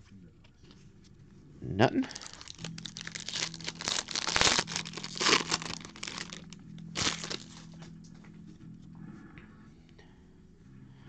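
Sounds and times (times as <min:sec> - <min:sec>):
foil wrapper tearing and crinkling: 0:02.1 - 0:07.8.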